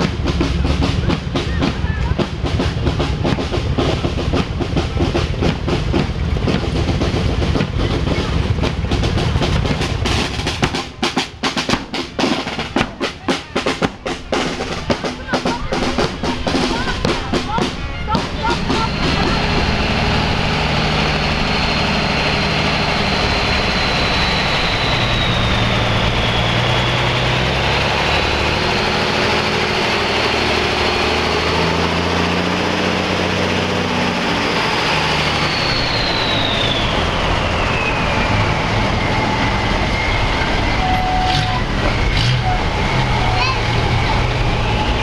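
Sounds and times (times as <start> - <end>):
military trucks driving past: 0.0 - 45.0
high whine: 16.0 - 45.0.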